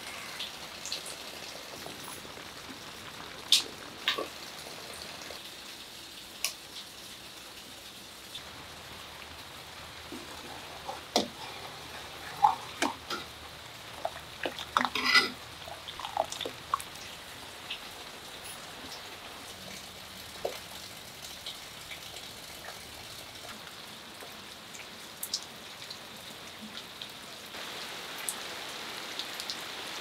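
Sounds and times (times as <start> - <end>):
water drips: 0.0 - 5.4, 8.3 - 27.6
steady rain falling: 0.0 - 30.0.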